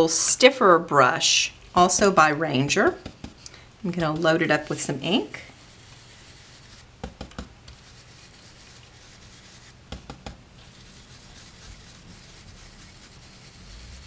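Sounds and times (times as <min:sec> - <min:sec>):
brush rubbing on paper: 0:03.0 - 0:06.9, 0:07.7 - 0:09.8, 0:10.6 - 0:14.0.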